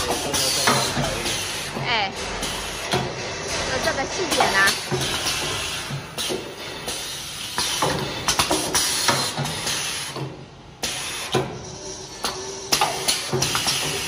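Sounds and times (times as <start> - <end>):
machine clacking: 0.0 - 9.9
air hissing bursts: 4.6 - 14.0.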